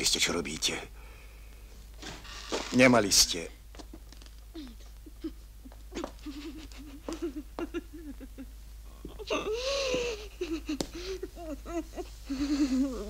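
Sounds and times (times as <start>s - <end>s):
woman whimpering: 4.5s - 8.4s, 9.1s - 13.0s
woman moaning cry: 4.5s - 13.0s.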